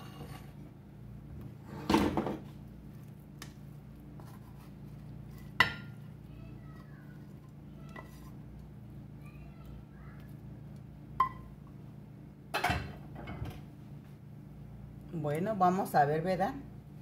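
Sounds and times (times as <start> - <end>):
spatula scraping pan: 0.0 - 0.6, 4.1 - 6.2, 6.8 - 8.5
steady low hum: 0.0 - 17.0.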